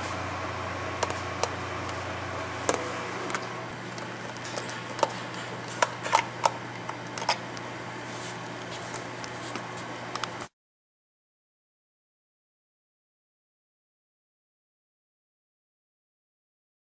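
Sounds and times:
steady low hum: 0.0 - 10.5.

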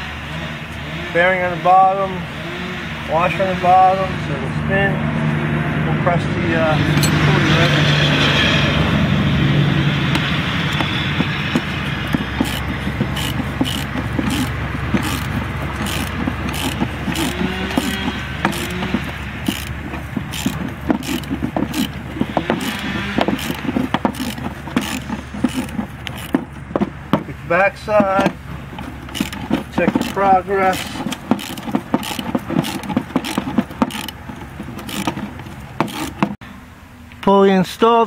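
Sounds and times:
steady low hum: 0.0 - 37.3
ratchet wrench clicking: 10.1 - 26.4, 28.1 - 36.3.

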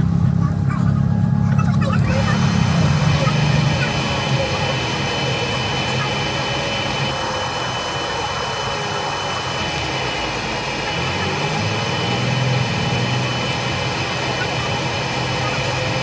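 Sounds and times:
bus engine and drivetrain hum: 0.0 - 16.0
thin high whine: 0.9 - 16.0.

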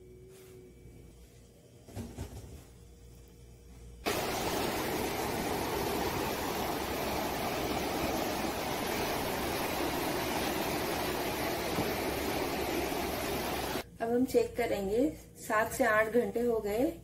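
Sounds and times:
steady rushing noise: 4.1 - 13.8.

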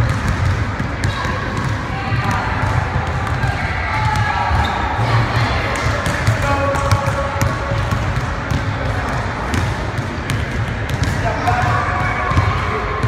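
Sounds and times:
basketball bouncing on wooden floor: 0.0 - 4.8, 5.8 - 12.5.

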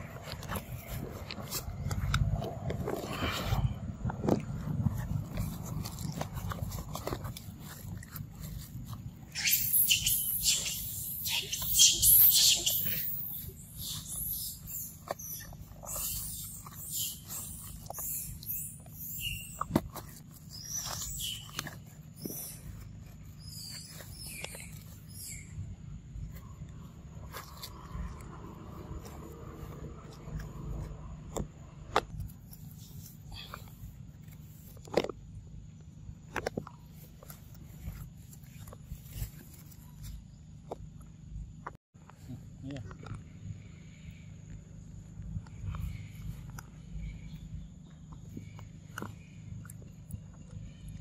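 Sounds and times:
monkey handling and biting food: 0.0 - 3.6, 4.2 - 25.5
monkey hissing: 9.3 - 19.6.

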